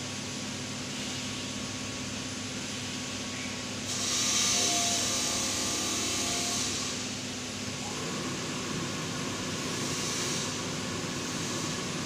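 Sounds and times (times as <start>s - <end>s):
machine electrical hum: 0.0s - 12.0s
loud steady hiss: 2.6s - 7.2s.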